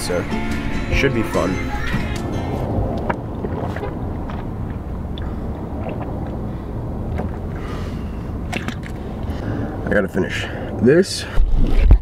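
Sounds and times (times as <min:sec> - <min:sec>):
car interior rumble: 0:00.0 - 0:12.0.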